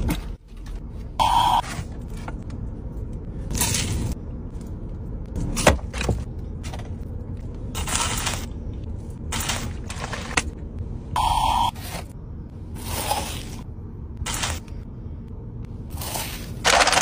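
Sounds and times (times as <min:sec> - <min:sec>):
paper box and pastry rustling: 0:15.9 - 0:17.0.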